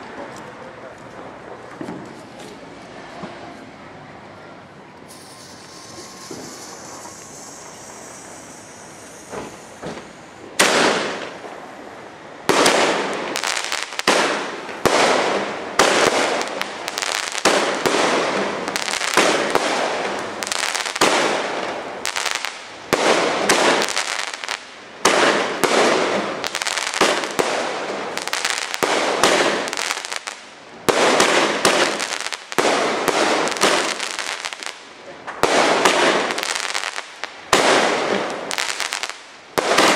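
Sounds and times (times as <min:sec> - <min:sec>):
fireworks exploding: 0:05.0 - 0:39.9.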